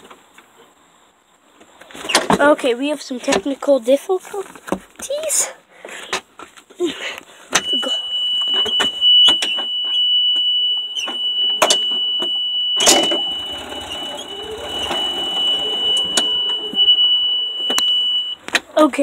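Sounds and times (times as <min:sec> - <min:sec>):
high-pitched electronic tone: 0:07.7 - 0:18.4.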